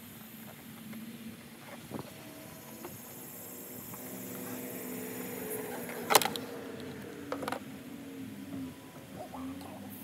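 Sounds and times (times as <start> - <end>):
steady low hum: 0.0 - 10.0
sharp click of engine parts: 6.0 - 6.5.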